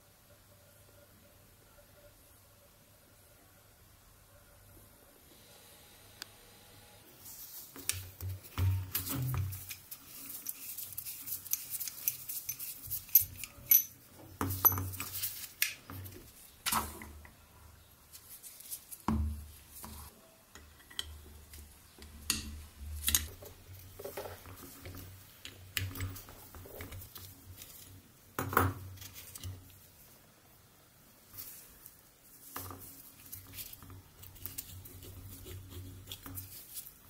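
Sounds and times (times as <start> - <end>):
metal parts clinking and scraping: 8.7 - 15.7.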